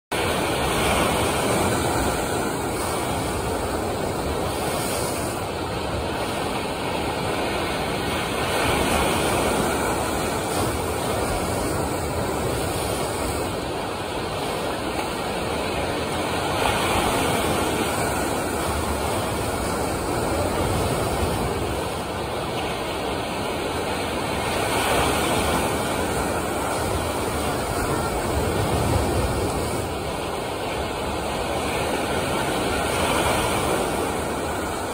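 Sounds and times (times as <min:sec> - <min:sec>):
waves of churning water: 0:00.1 - 0:34.9.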